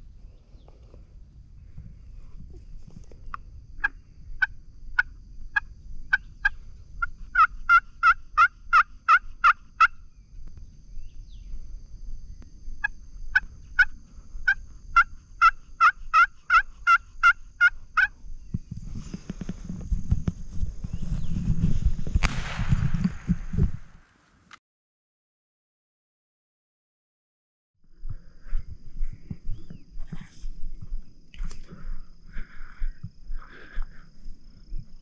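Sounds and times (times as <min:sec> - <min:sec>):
friction turkey call yelps: 0:07.3 - 0:09.9, 0:15.0 - 0:18.1.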